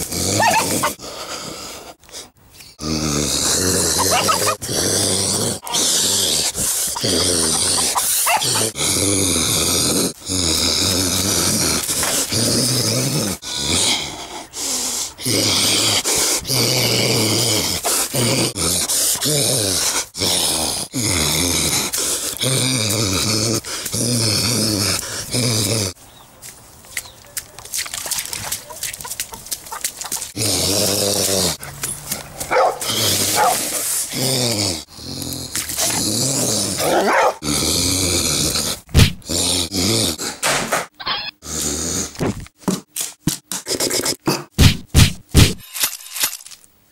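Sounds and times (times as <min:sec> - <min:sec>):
man growling and grunting: 0:00.0 - 0:01.7, 0:02.8 - 0:26.0, 0:30.3 - 0:31.8, 0:32.5 - 0:40.4, 0:41.4 - 0:42.4
sharp knock: 0:44.6 - 0:45.6.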